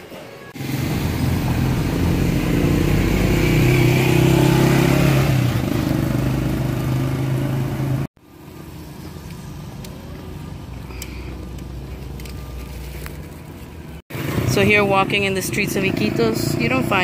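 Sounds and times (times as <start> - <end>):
street noise: 0.0 - 17.0
small motorcycle engine running: 0.6 - 8.4, 14.1 - 17.0.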